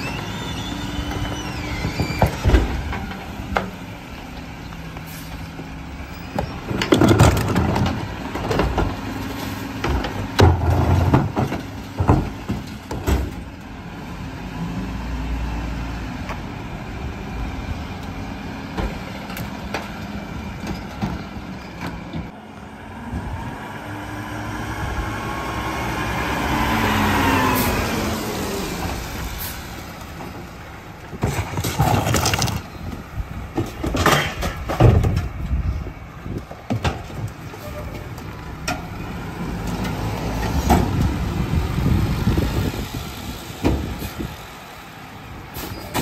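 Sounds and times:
garbage truck passing: 0:00.0 - 0:46.0
trash cans knocking and banging: 0:06.7 - 0:09.0, 0:09.8 - 0:13.5, 0:31.1 - 0:32.7, 0:33.5 - 0:35.4, 0:36.5 - 0:37.4.

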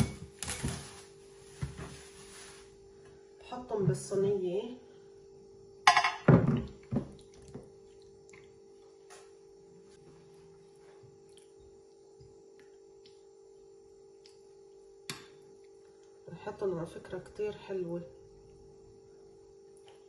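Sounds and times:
glass clink: 0:05.9 - 0:06.3.

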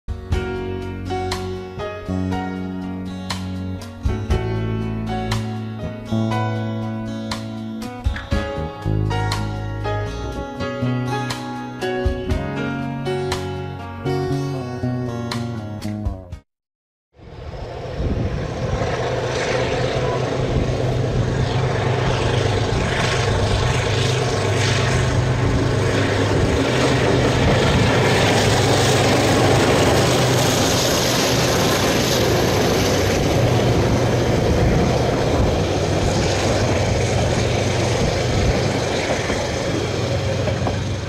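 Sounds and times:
locomotive engine drone: 0:17.2 - 0:41.0
wheels on rails: 0:26.9 - 0:41.0.

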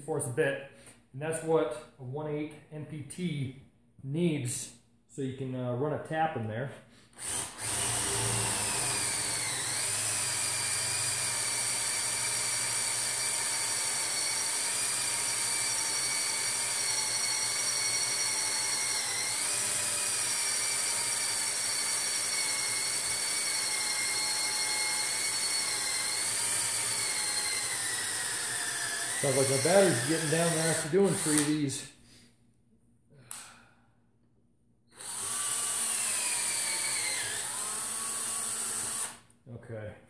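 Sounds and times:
cordless drill whining: 0:07.2 - 0:31.6, 0:34.9 - 0:39.2.

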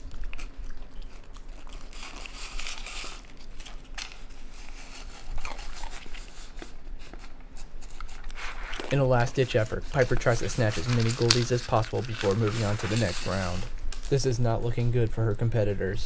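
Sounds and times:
crunching: 0:00.0 - 0:14.2
crackers rattling in a bowl: 0:08.8 - 0:13.7.

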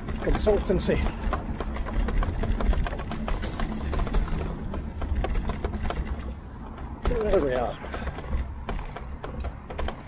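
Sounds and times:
bike knocking and rattling: 0:00.0 - 0:10.0
tyre and wind rumble: 0:00.0 - 0:10.0.

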